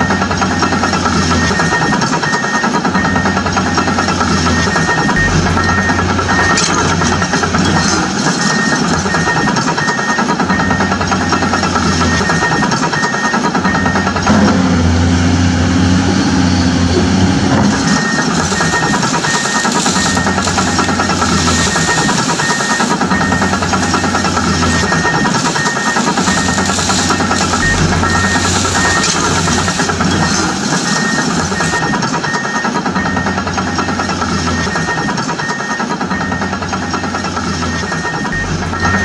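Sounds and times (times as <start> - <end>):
excavator engine running: 0.0 - 39.0
faint short beeps: 4.5 - 10.8, 17.9 - 33.2, 37.8 - 39.0.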